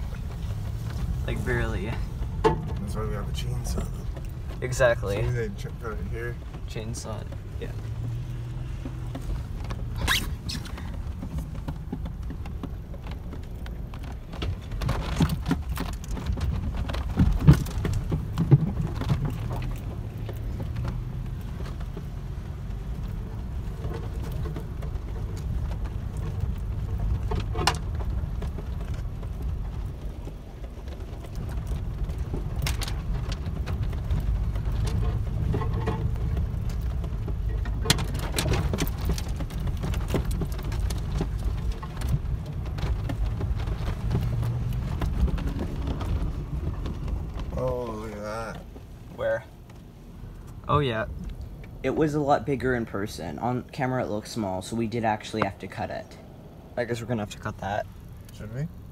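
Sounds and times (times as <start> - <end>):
truck engine and road rumble: 0.0 - 58.9
clicks knocks and rattles: 10.6 - 22.1, 22.8 - 47.5.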